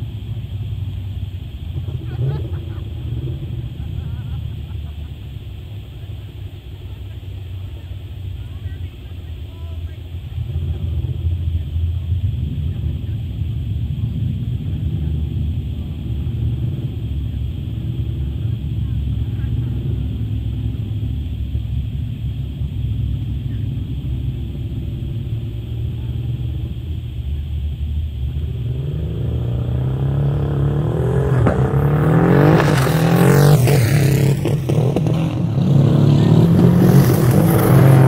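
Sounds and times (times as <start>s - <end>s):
steady low rumble: 0.0s - 38.0s
vehicle engine accelerating through upshifts: 10.2s - 38.0s.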